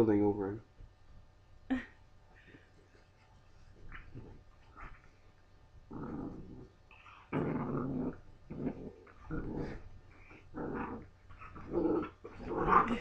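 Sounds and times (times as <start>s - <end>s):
puppies growling: 5.9s - 13.0s.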